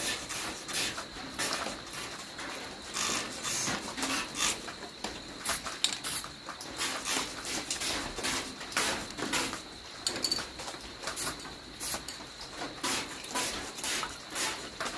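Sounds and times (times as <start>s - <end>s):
spray paint can hissing: 5.4s - 6.2s.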